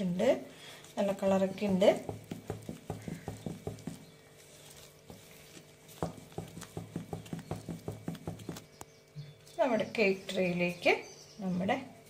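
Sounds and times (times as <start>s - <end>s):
spatula stirring batter in glass bowl: 1.1s - 8.6s.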